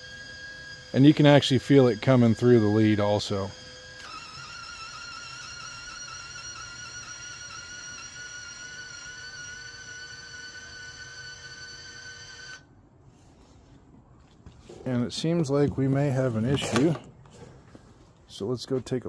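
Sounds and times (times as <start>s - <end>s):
welder wire-feed motor whine: 0.0s - 12.8s.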